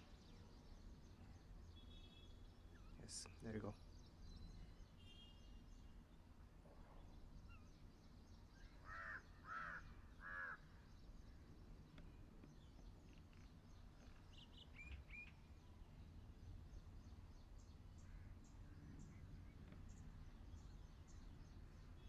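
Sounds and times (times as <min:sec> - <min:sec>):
faint bird chirps: 0:00.0 - 0:06.1, 0:06.7 - 0:22.0
crow cawing: 0:08.8 - 0:10.7.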